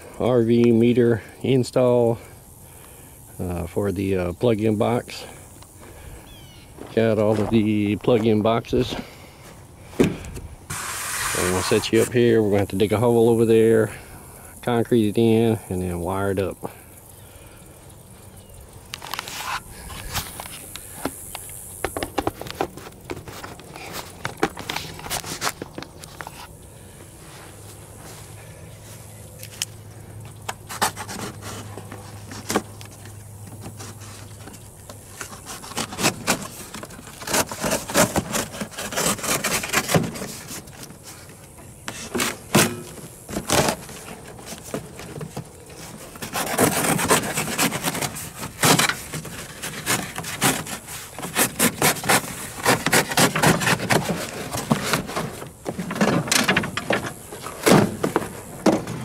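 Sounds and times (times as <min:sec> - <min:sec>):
cardboard box tearing: 0:35.2 - 0:40.8, 0:42.0 - 0:58.4.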